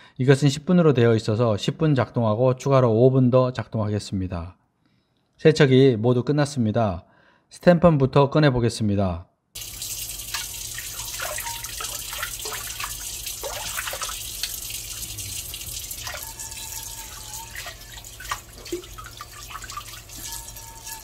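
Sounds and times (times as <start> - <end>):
water dripping: 9.6 - 21.0
water running from faucet: 9.6 - 21.0
water splashing on metal pan: 9.6 - 21.0.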